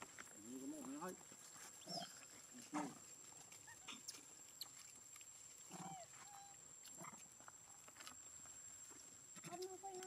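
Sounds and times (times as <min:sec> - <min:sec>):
faint macaque calls: 0:01.8 - 0:03.0, 0:03.6 - 0:04.8, 0:05.7 - 0:07.2.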